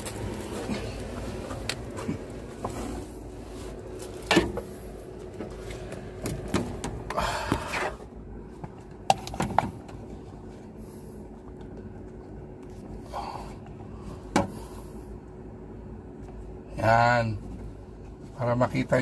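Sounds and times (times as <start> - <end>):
rustling scrape: 0.0 - 4.8
steady low hum: 0.0 - 19.0.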